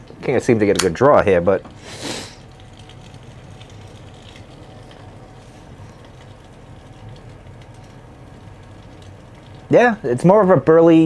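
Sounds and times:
electric heater humming: 0:00.0 - 0:11.0
breathy puff of air: 0:01.8 - 0:02.4.

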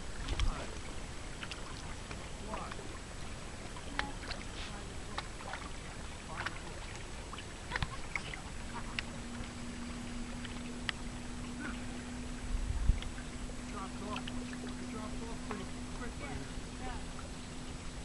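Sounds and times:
short sharp splashes: 0:00.0 - 0:12.1
faint steady hum: 0:00.0 - 0:18.0
lake water lapping at shore: 0:00.0 - 0:18.0.

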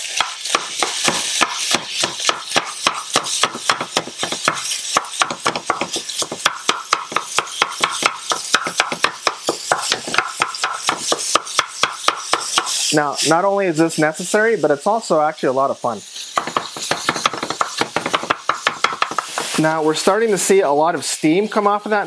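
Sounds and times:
meat chopper tapping in skillet: 0:00.0 - 0:12.9, 0:16.2 - 0:19.6
meat sizzling: 0:00.0 - 0:22.0.

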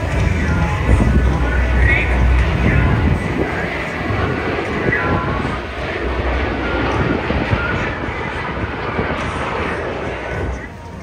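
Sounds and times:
jet engines flying past: 0:00.0 - 0:11.0.

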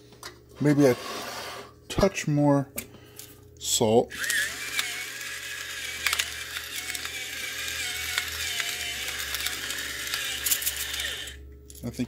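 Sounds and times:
electric salt mill motor whine: 0:04.1 - 0:11.4.

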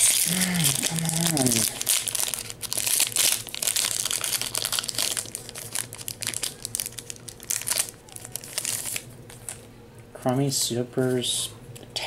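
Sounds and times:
foil wrapper tearing and crinkling: 0:00.0 - 0:09.6.

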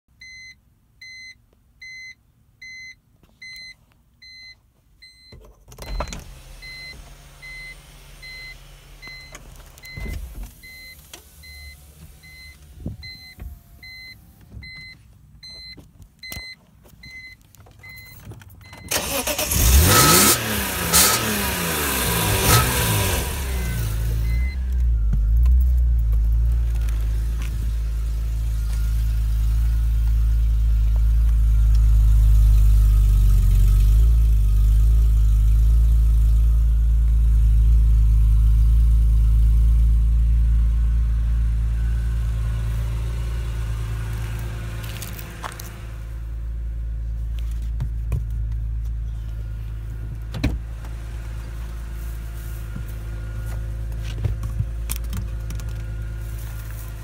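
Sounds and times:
car warning chime beeping: 0:00.2 - 0:20.3, 0:23.6 - 0:25.7
car engine starting and revving: 0:05.8 - 0:14.8, 0:18.7 - 0:57.0.

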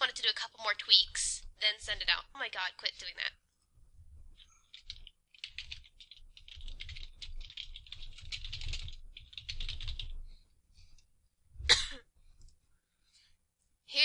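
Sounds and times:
rapid typing on keyboard: 0:04.4 - 0:10.2.

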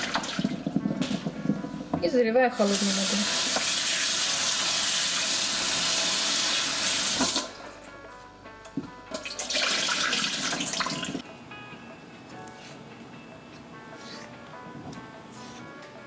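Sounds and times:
water poured into steel sink: 0:09.2 - 0:11.2.

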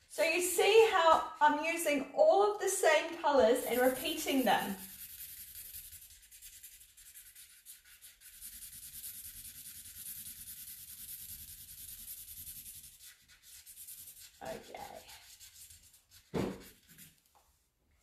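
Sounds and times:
pencil scribbling on paper: 0:03.4 - 0:17.2.

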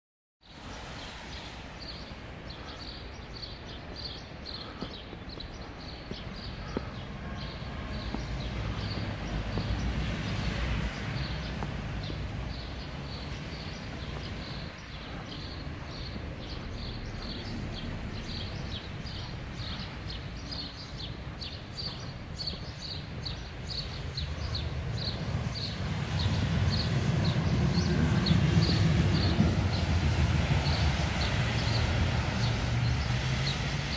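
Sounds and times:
low rumble of street traffic: 0:00.4 - 0:33.9
footsteps walking: 0:04.7 - 0:16.4, 0:18.6 - 0:23.5.

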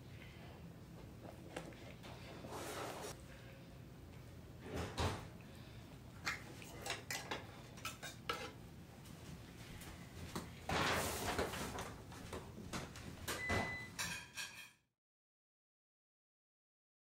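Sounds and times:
utensils and pans clinking: 0:06.3 - 0:08.6, 0:13.4 - 0:14.8.

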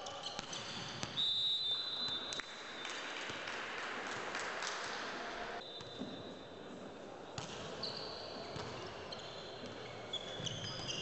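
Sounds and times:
referee's whistle: 0:00.2 - 0:02.8, 0:05.6 - 0:06.4.

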